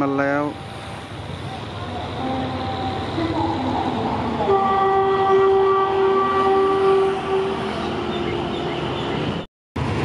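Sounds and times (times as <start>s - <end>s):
locomotive horn blast: 2.0s - 8.5s.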